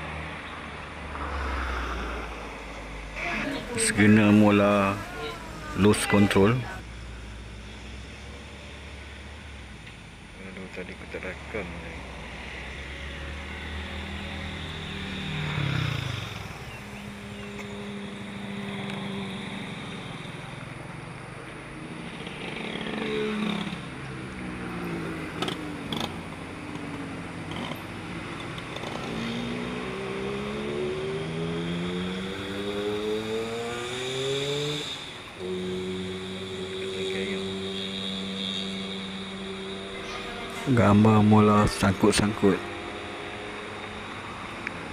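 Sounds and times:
traffic passing: 0.0s - 44.9s
engine accelerating: 10.4s - 44.9s.

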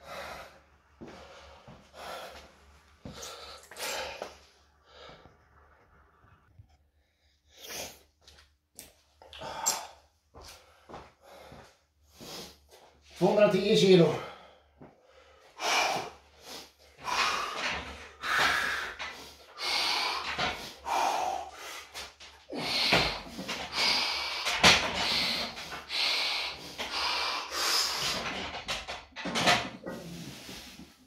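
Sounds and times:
person breathing forcefully: 0.0s - 5.3s, 9.4s - 12.7s, 14.3s - 28.8s.

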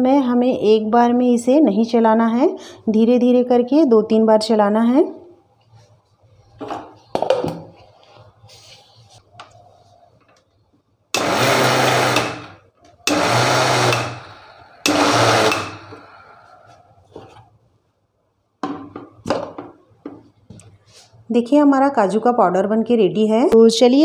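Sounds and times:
mixer grinder motor grinding: 11.2s - 16.4s.

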